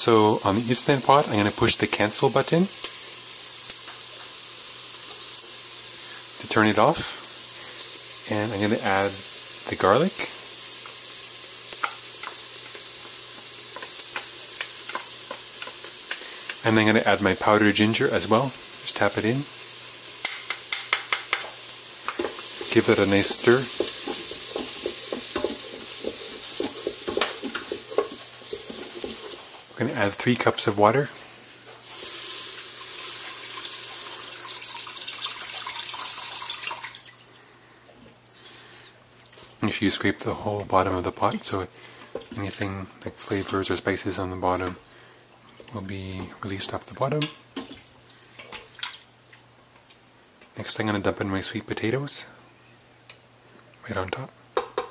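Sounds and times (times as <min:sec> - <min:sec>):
onions sizzling in hot oil: 0:00.0 - 0:37.4
water pouring into a pot: 0:31.8 - 0:37.4.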